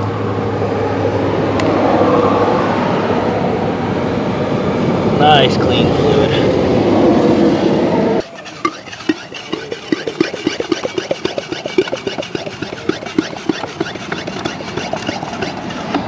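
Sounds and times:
hand pump squelching clicks: 8.2 - 16.0.

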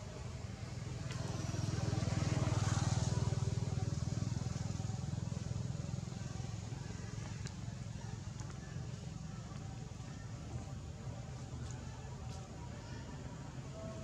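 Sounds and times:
motorcycle passing by: 0.0 - 9.4.

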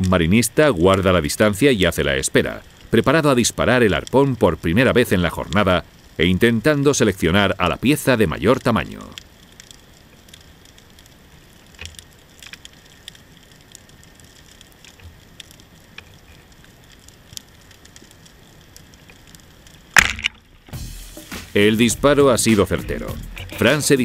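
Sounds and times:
underwater clicks and crackles: 0.0 - 20.8
speargun firing underwater: 20.0 - 20.8.

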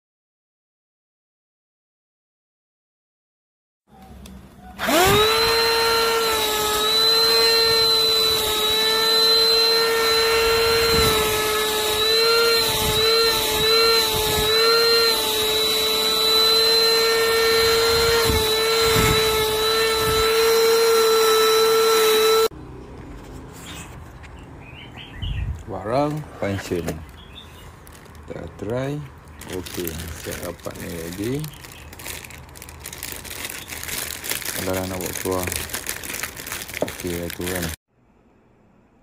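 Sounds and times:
handheld vacuum cleaner whine: 4.8 - 22.5.

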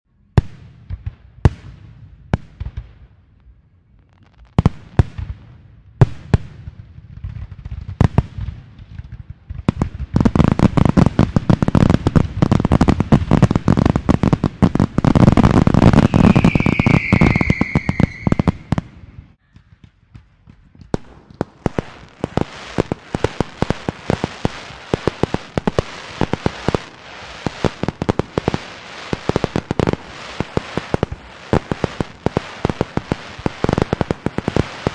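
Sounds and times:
firecracker bangs and crackling: 0.4 - 3.3, 4.0 - 34.9
firework whistle falling in pitch: 15.9 - 18.8.

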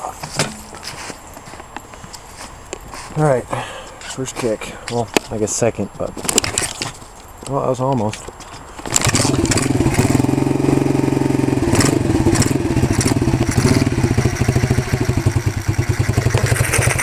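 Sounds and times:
small engine idling unevenly: 9.0 - 17.0.

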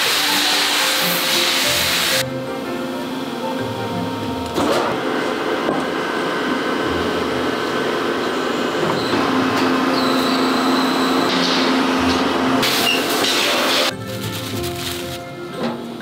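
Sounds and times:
hydraulic hiss: 0.0 - 2.3, 12.6 - 14.0
hydraulic press humming: 0.0 - 16.0.

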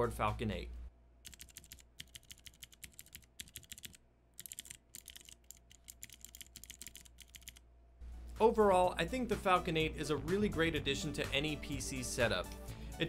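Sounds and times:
keyboard keys clicking: 1.3 - 7.6.

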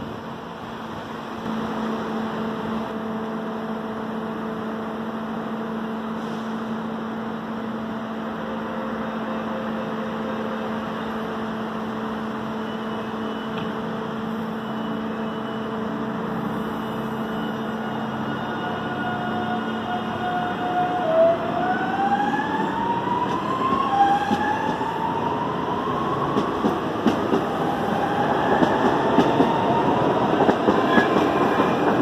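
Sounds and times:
electric train equipment hum: 0.0 - 32.0
short high door beeps: 14.5 - 15.7.

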